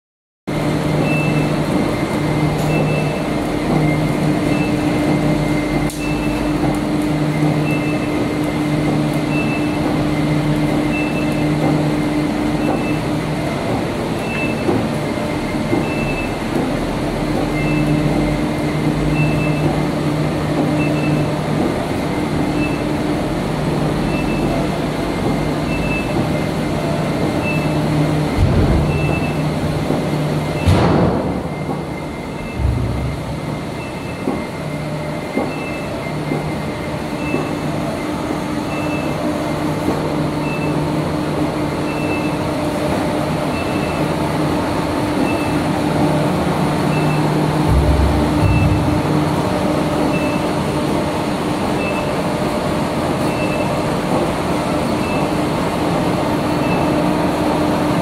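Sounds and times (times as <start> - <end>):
machine humming: 0.5 - 58.0
low tone: 30.6 - 34.3, 46.9 - 50.6.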